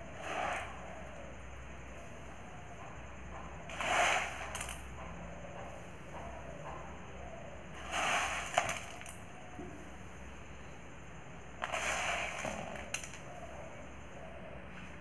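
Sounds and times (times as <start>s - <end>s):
rice grains rustling and rattling: 7.8s - 9.1s, 11.6s - 13.1s.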